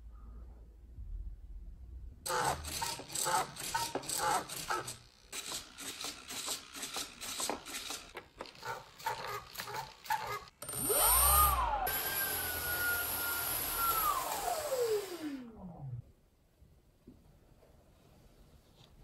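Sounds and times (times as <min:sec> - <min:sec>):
electric motor whine: 0:10.7 - 0:16.0.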